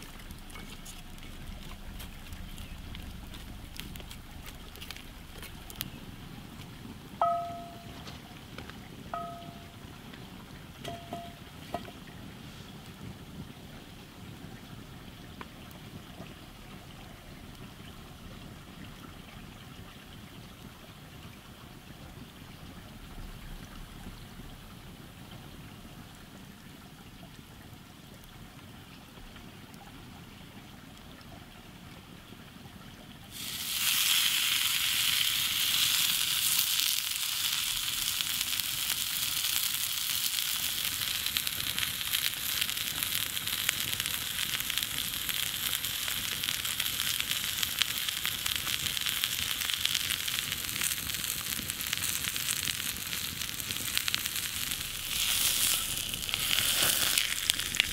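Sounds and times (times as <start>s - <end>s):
fire crackling: 0.0s - 19.4s, 33.3s - 57.9s
steak sizzling in hot oil: 33.3s - 57.9s.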